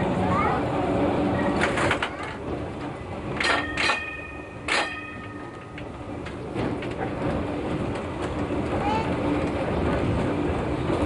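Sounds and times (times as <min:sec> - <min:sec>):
tram wheels rumbling on track: 0:00.0 - 0:11.0
sharp metallic clanks: 0:03.3 - 0:06.4.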